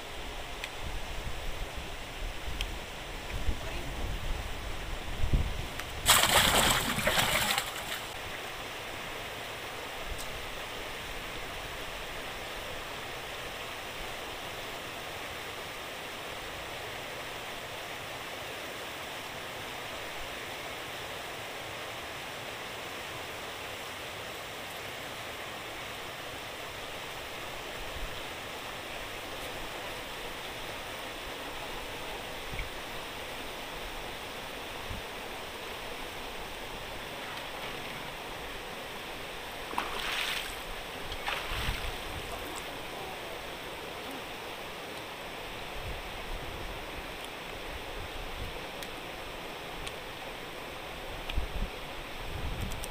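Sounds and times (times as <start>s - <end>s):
water rushing from a sluice: 5.9s - 9.6s, 36.0s - 43.0s.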